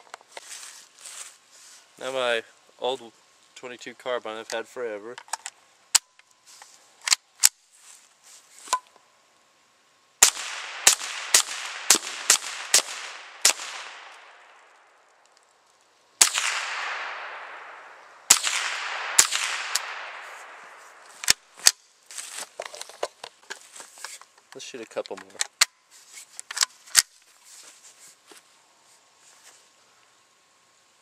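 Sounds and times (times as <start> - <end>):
rifle gunshots with echo: 10.2 - 14.4, 16.2 - 20.8
sharp clicks: 18.3 - 20.1.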